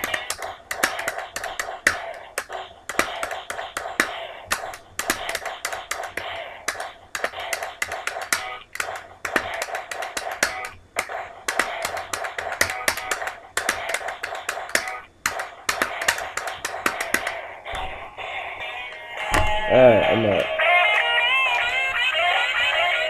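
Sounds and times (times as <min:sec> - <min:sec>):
beatboxing: 0:00.0 - 0:17.9.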